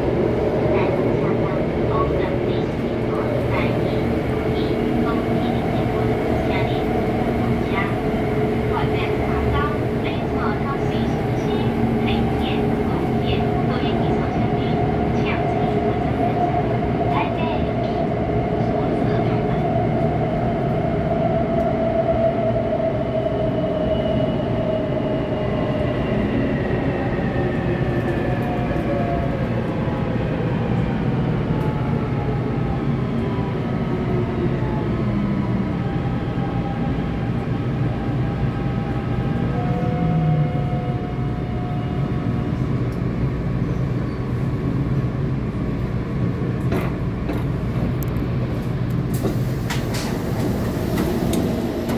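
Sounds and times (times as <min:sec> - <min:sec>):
train car rumble: 0:00.0 - 0:22.2, 0:38.0 - 0:51.9.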